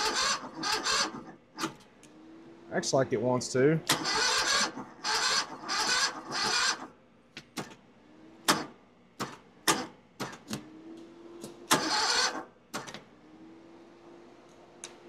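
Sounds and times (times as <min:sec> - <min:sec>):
engine starter cranking: 0:00.0 - 0:01.8, 0:03.9 - 0:07.0, 0:11.7 - 0:13.0
sharp starter clicks: 0:00.0 - 0:01.8, 0:03.8 - 0:06.9, 0:08.4 - 0:10.6, 0:11.4 - 0:13.1.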